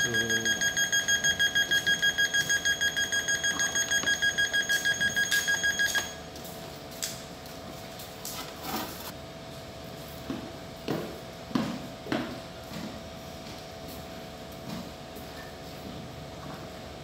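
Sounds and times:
rapid beeping alarm: 0:00.0 - 0:06.3.

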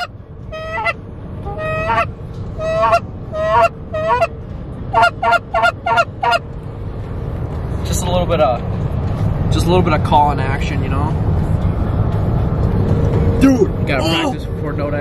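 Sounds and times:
goose call honks: 0:00.0 - 0:04.3
road rumble inside a car: 0:00.0 - 0:15.0.

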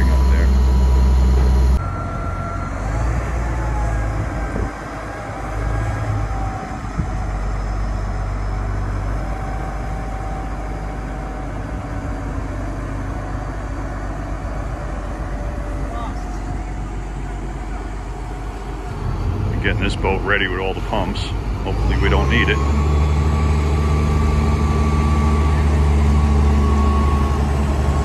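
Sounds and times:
faint steady whine: 0:00.0 - 0:01.9
diesel engine rumbling: 0:00.0 - 0:28.0
loud low rumble: 0:14.9 - 0:28.0.

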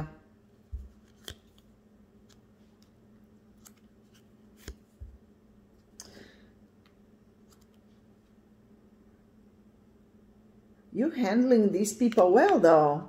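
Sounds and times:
faint steady hum: 0:00.0 - 0:13.0
card sliding rustle: 0:00.7 - 0:02.9, 0:03.5 - 0:05.2.

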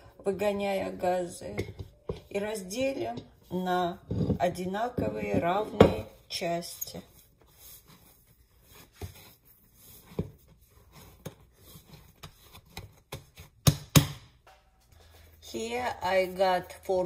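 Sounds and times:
dough taps and scrapes: 0:00.4 - 0:15.1
dough thumping on countertop: 0:05.0 - 0:06.1.

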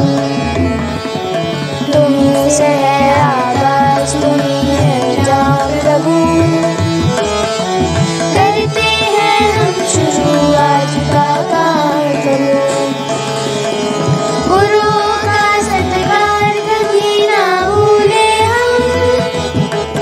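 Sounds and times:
melodic instrumental backing: 0:00.0 - 0:20.0
children singing: 0:01.9 - 0:06.7, 0:08.2 - 0:13.1, 0:13.9 - 0:19.4.

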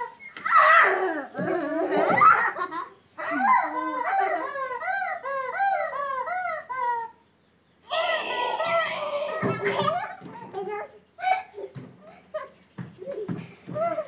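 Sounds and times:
rubber chicken toy squawking: 0:03.2 - 0:07.2, 0:07.8 - 0:10.0.

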